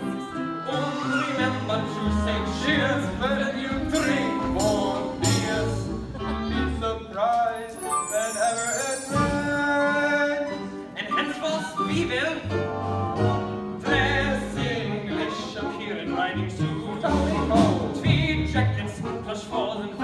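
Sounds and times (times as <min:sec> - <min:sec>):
instrumental accompaniment: 0:00.0 - 0:20.0
men singing a comic show tune: 0:00.7 - 0:12.4, 0:13.8 - 0:20.0.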